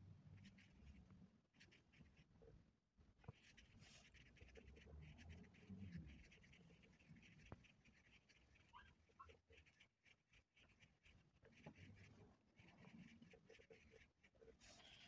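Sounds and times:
crochet hook rustling through yarn: 0:03.3 - 0:15.0.

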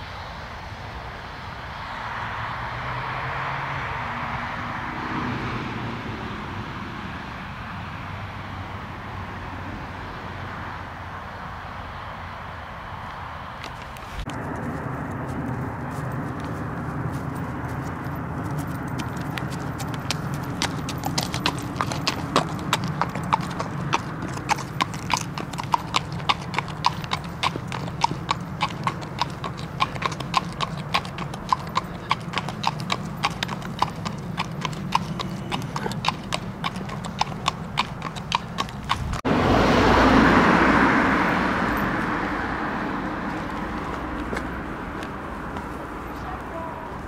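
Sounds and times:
footsteps clopping on hard ground: 0:13.6 - 0:39.2, 0:43.3 - 0:46.2
loud rushing noise: 0:39.0 - 0:43.8.

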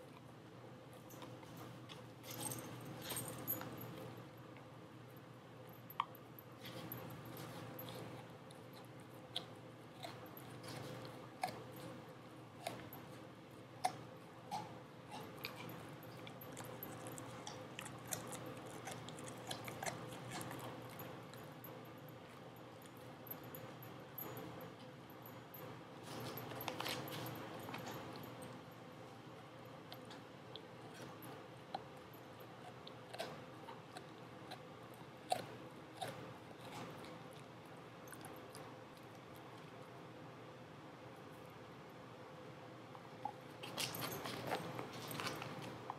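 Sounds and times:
dog chewing rawhide: 0:06.6 - 0:13.0, 0:13.8 - 0:21.5, 0:26.1 - 0:28.3, 0:30.8 - 0:39.6, 0:43.5 - 0:45.9.

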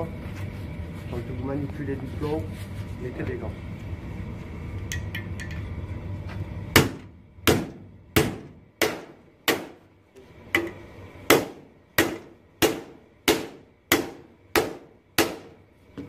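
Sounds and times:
steady low hum: 0:00.0 - 0:16.0
hammer striking sheet metal: 0:11.3 - 0:15.6.

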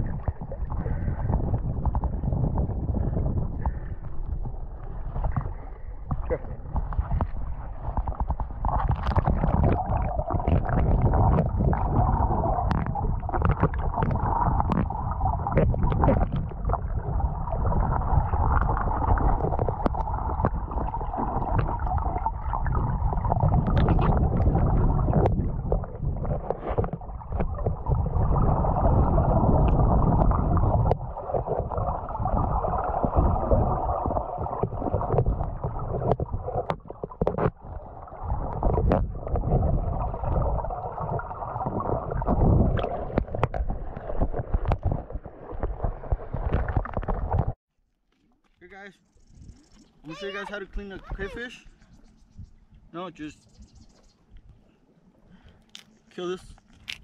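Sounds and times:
muffled underwater river rush: 0:00.0 - 0:47.6
stones clicking on riverbed: 0:56.6 - 0:57.0.

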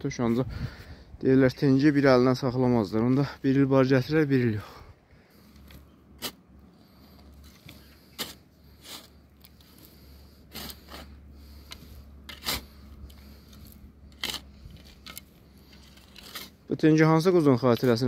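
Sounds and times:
spade scraping soil: 0:05.3 - 0:18.0.

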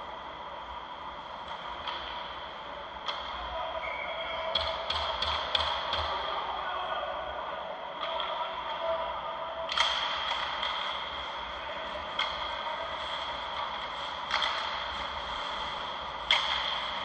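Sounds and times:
steady high hum: 0:00.0 - 0:17.0
hockey sticks and puck knocking: 0:04.5 - 0:06.3, 0:09.7 - 0:17.0.

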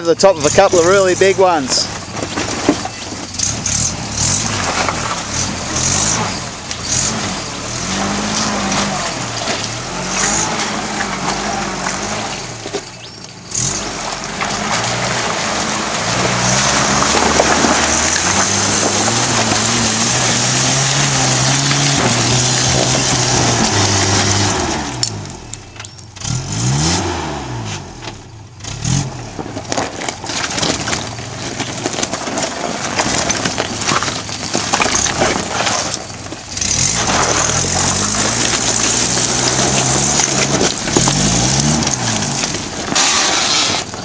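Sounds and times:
stones crunching under tyres: 0:00.0 - 0:44.0
pickup engine revving: 0:00.2 - 0:44.0
wheels spinning: 0:29.6 - 0:44.0.

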